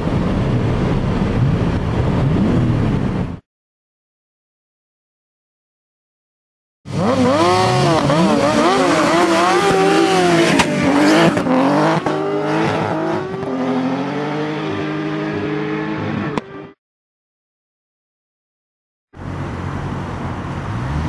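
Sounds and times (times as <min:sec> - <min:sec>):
engines revving and accelerating: 0:06.9 - 0:16.8, 0:19.2 - 0:21.0.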